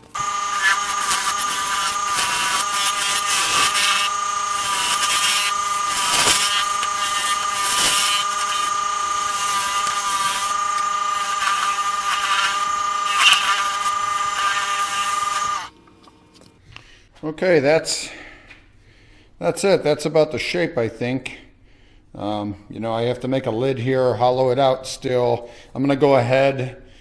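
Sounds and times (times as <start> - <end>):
turning tool cutting wood: 0.0 - 15.7
wood lathe motor whine: 0.0 - 15.7.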